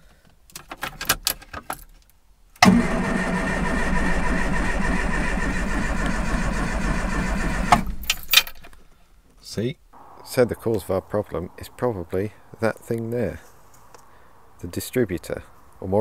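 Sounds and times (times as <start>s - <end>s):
car engine cranking: 2.6s - 8.7s
keys clicking in ignition: 8.0s - 8.8s.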